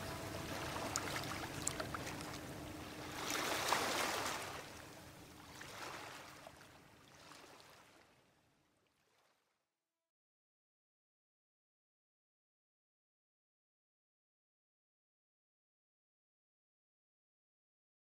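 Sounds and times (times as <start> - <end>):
faint held note: 0.0 - 2.5
water lapping: 0.0 - 9.4.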